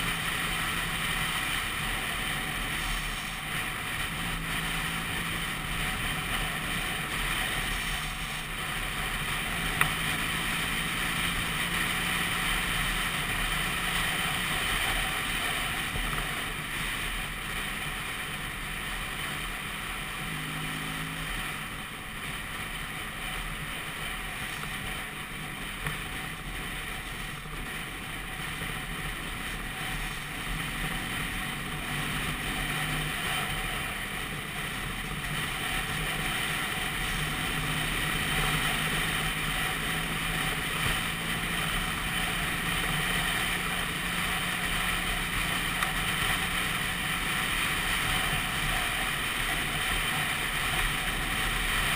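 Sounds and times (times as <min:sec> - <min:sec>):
scooter engine running: 0:00.0 - 0:51.9.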